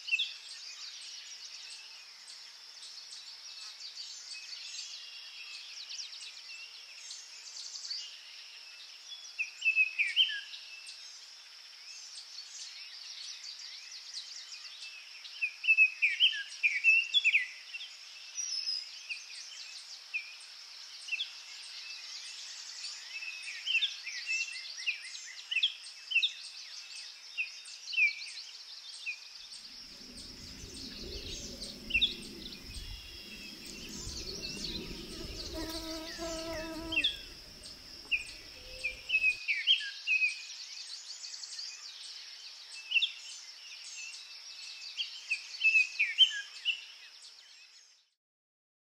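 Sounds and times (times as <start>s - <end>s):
small birds chirping: 29.6s - 39.4s
high-pitched insect drone: 29.9s - 39.3s
low buzzing: 29.9s - 39.3s.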